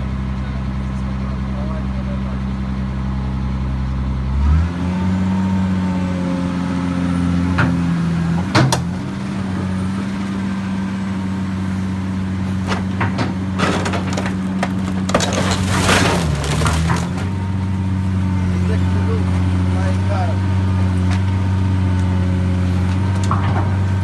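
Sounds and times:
excavator diesel engine running: 0.0s - 24.0s
wood cracking and snapping: 12.8s - 17.4s.

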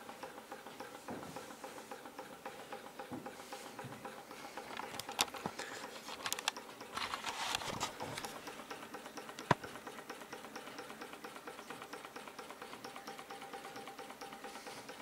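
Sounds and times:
stirling engine clicking: 0.0s - 15.0s
brief rustle: 4.8s - 8.3s.

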